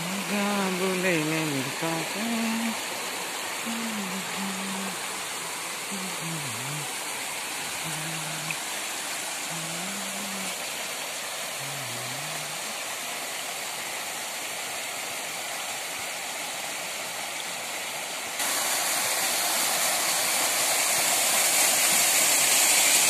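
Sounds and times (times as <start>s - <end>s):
waterfall rushing and splashing: 0.0s - 23.0s.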